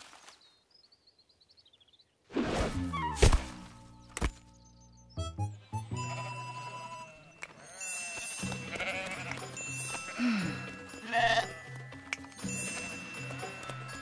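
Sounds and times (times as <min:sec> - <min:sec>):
light background music: 0:02.8 - 0:14.0
cartoon sheep bleating: 0:11.0 - 0:11.6.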